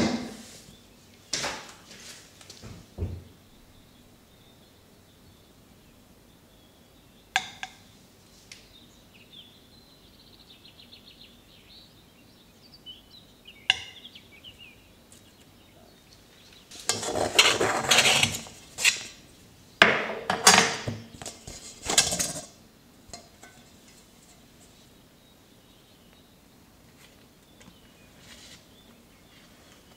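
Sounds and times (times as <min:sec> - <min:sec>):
utensil scraping a dish: 0:16.8 - 0:19.2
utensils clinking on dishes: 0:20.3 - 0:23.7.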